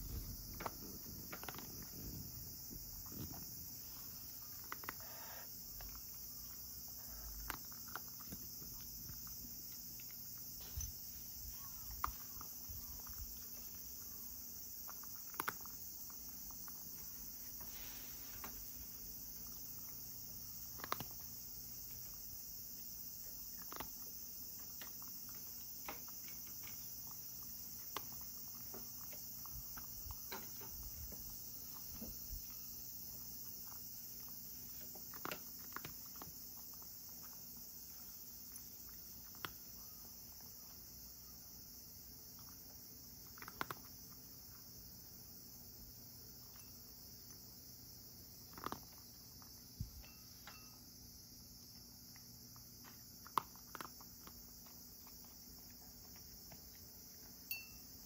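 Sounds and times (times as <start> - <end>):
cat crunching dry kibble: 0.0 - 17.6, 18.3 - 41.1, 42.0 - 49.7, 51.7 - 57.5
steady high hiss: 0.0 - 24.9, 49.6 - 51.7, 56.9 - 58.0.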